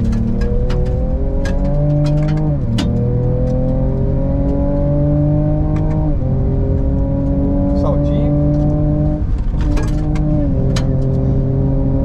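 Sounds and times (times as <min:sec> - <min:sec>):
car engine accelerating hard: 0:00.0 - 0:12.0.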